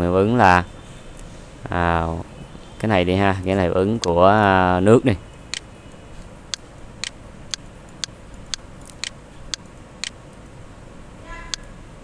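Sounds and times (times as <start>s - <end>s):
low steady hiss: 0.0s - 12.0s
regular ticking: 3.4s - 10.6s.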